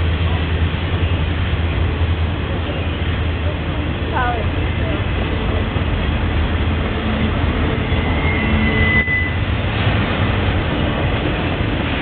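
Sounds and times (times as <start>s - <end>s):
freight train wheels rumbling: 0.0s - 12.0s
faint high squeal: 7.8s - 9.5s.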